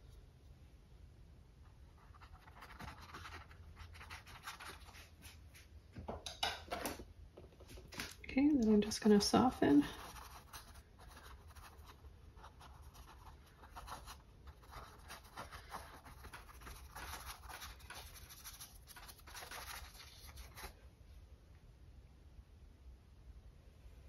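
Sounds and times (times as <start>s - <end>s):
paintbrush brushing on canvas: 1.9s - 5.7s, 9.9s - 20.8s.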